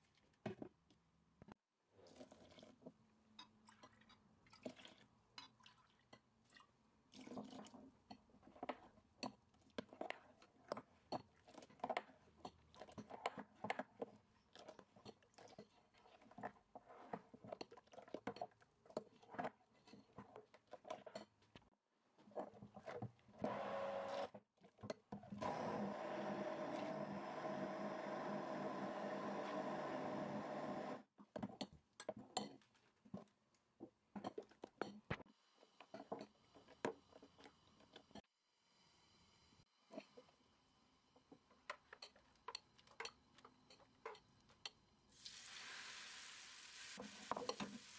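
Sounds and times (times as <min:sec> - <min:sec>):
immersion blender running: 0:23.4 - 0:24.3, 0:25.4 - 0:31.0.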